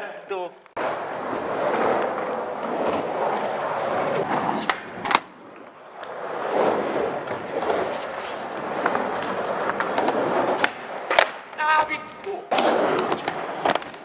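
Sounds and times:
skateboard wheels rolling on concrete: 0.4s - 14.0s
skateboard clacks: 0.8s - 14.0s.

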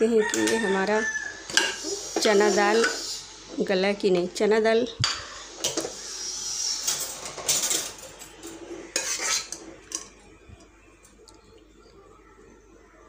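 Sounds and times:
metal spoon scraping in pot: 0.2s - 3.2s, 5.0s - 10.1s.

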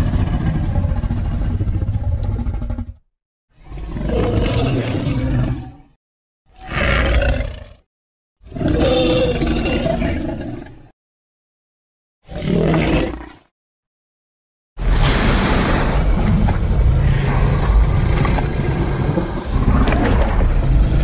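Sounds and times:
monster roar: 3.8s - 5.9s, 6.6s - 7.9s, 8.5s - 10.7s, 14.9s - 21.0s.

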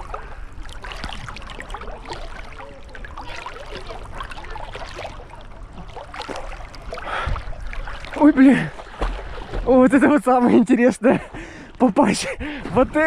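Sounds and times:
river water splashing: 0.0s - 11.9s.

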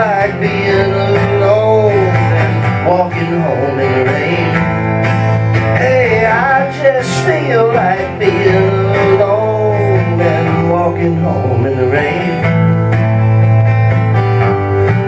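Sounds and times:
person singing: 0.0s - 4.8s, 5.6s - 12.5s
acoustic guitar: 0.0s - 15.0s
bass line: 0.0s - 15.0s.

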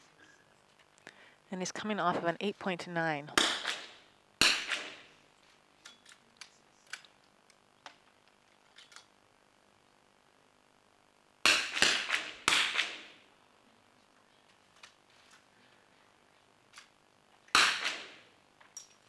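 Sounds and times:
rifle shots echoing: 3.4s - 5.2s, 11.4s - 13.2s, 17.5s - 18.3s.

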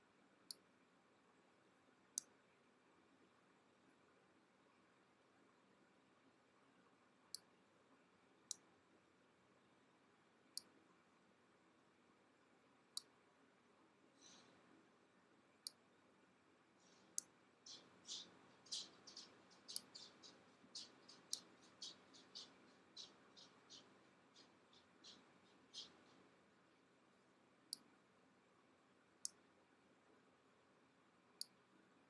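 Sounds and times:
faint high chirps: 16.8s - 26.5s.

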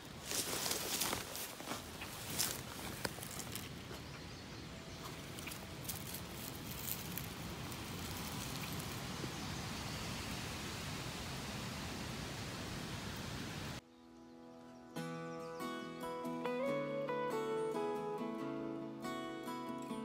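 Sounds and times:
dry leaves rustling: 0.0s - 11.8s
twigs snapping: 0.3s - 4.0s, 5.0s - 9.1s.

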